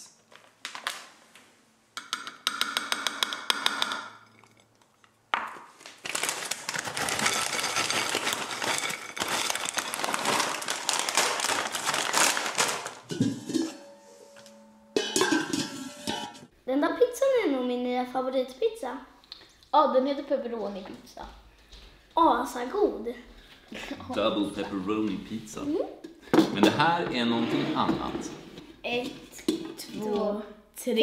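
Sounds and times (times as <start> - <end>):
plastic bag crinkling: 0.2 - 1.2, 5.5 - 13.6.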